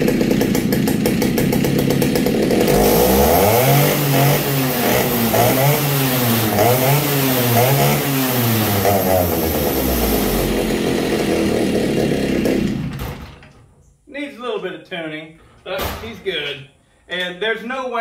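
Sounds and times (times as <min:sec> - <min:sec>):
two-stroke chainsaw revving: 0:00.0 - 0:13.2.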